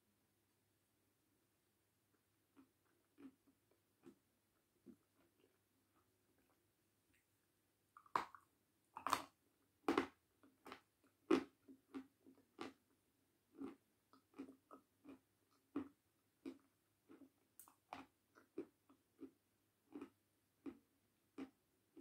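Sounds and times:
person biting and chewing crunchily: 9.0s - 12.8s.

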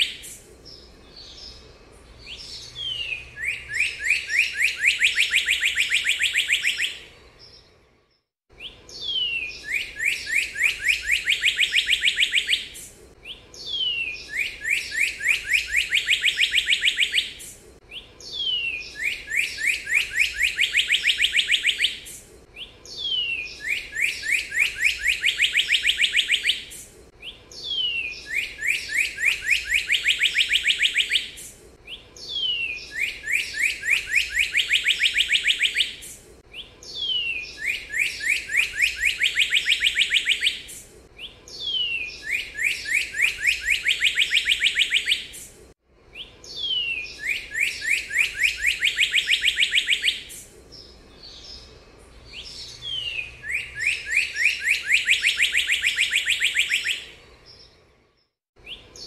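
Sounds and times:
cardinal singing whistled phrases: 0.0s - 1.1s, 2.2s - 7.2s, 8.6s - 51.4s, 52.3s - 57.5s, 58.6s - 59.0s.

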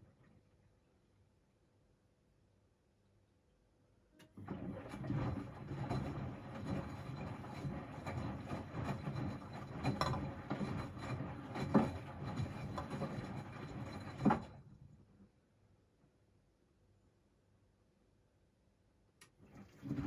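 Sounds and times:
washing machine drum turning: 4.2s - 14.6s, 19.5s - 20.0s.

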